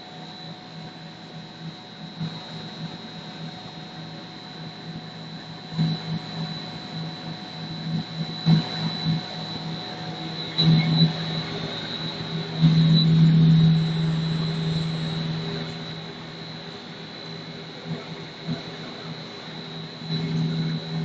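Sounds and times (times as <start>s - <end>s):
constant high whine: 0.0s - 21.0s
extruder motor hum: 7.5s - 16.6s.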